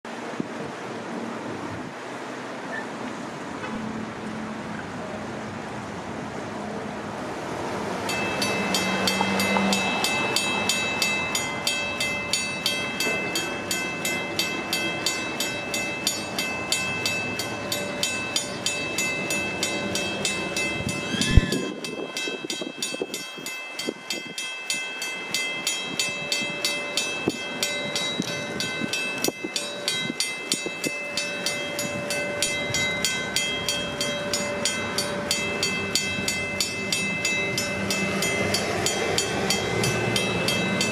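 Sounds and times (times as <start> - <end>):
railroad crossing bells ringing: 7.4 - 40.9.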